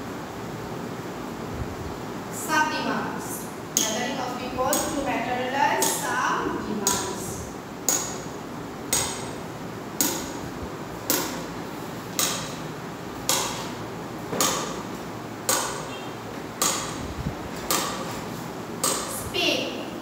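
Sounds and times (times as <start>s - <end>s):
sharp ringing knocks: 7.9s - 9.4s, 10.0s - 10.5s, 11.1s - 11.5s, 12.2s - 12.6s, 13.3s - 14.9s, 15.5s - 17.0s.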